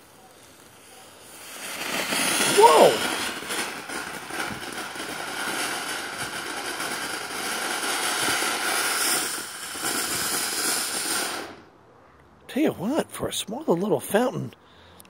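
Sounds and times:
firework fountain hissing: 0:00.0 - 0:11.7.

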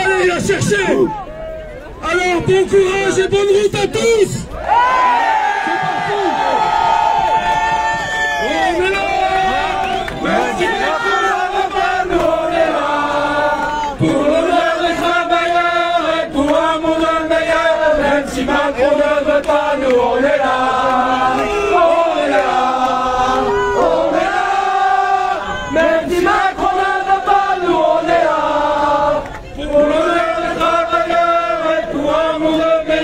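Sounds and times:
crowd singing in unison: 0:08.8 - 0:33.0.

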